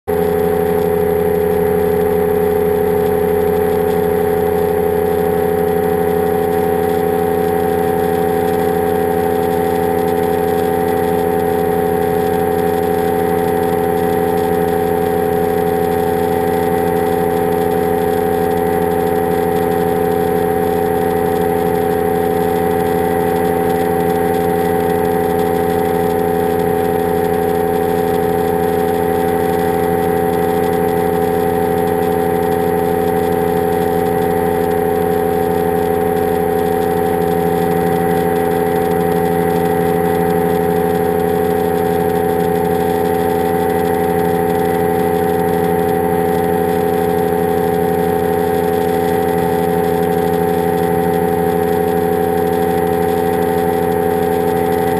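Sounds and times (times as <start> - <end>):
propeller engine droning: 0.1 - 54.9.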